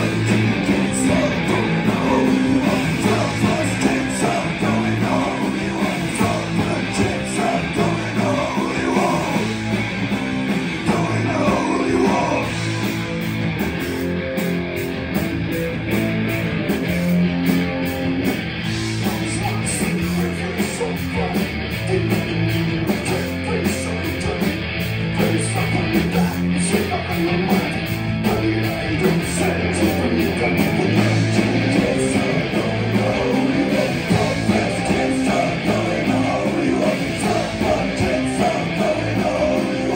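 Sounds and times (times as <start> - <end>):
person singing: 0.0 - 9.6, 10.8 - 12.6, 25.2 - 39.9
bass guitar: 0.0 - 39.9
drums with cymbal beat: 0.0 - 39.9
electric guitars: 0.0 - 39.9.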